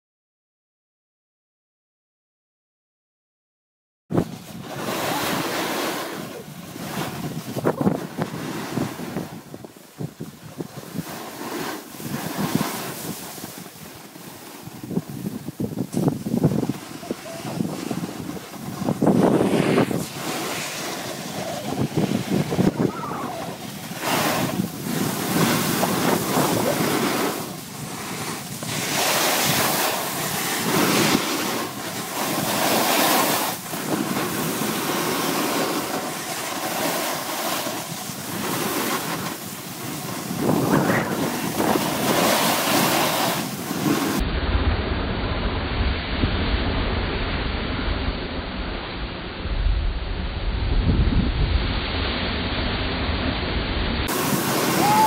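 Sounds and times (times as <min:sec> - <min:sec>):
snowboard scraping snow: 0:04.1 - 0:45.0, 0:54.0 - 0:55.0
wind on microphone: 0:04.1 - 0:55.0
muffled deep rumble: 0:44.2 - 0:54.1.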